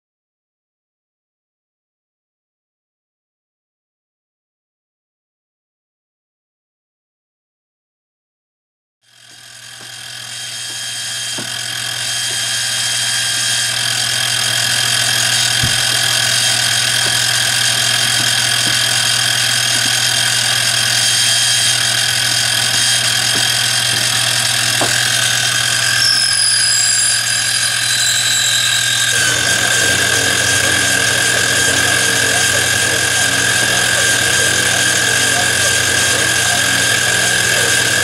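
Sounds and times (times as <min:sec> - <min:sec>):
mill spindle motor whining: 0:09.1 - 0:38.0
whining tones dropping in pitch: 0:10.1 - 0:38.0.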